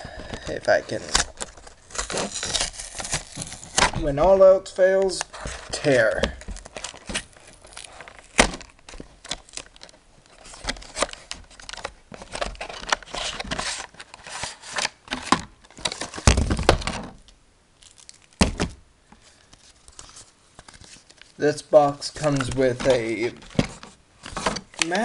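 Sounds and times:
cardboard box ripping: 0.9s - 4.0s.

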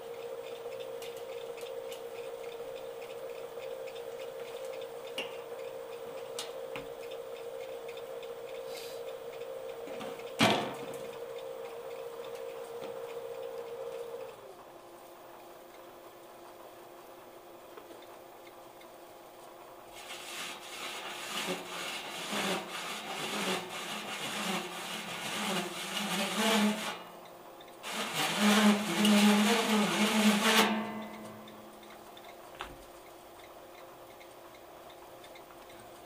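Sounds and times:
hole saw grinding into metal: 20.0s - 27.1s, 27.8s - 31.6s
metal panel ringing: 28.3s - 31.8s.

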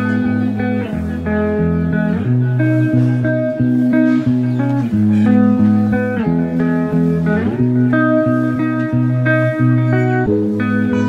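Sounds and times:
guitar music with bass: 0.0s - 11.0s.

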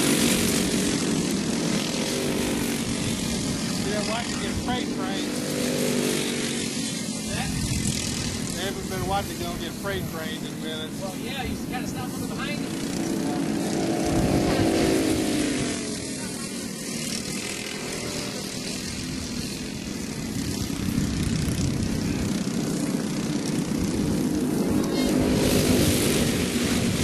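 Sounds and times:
racing kart engines buzzing: 0.0s - 27.0s.

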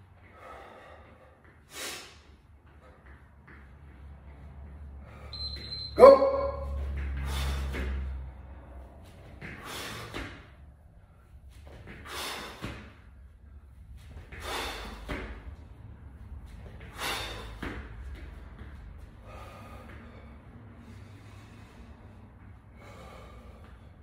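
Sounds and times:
man breathing heavily: 0.0s - 5.6s, 6.6s - 24.0s.

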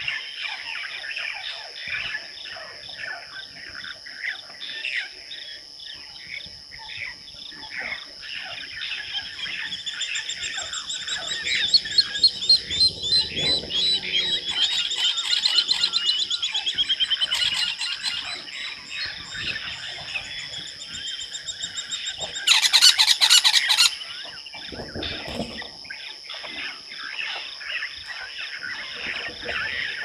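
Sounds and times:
birds chirping and calling: 0.0s - 30.0s
high-pitched insect drone: 0.0s - 30.0s
loud fast rattling call: 8.4s - 24.2s.

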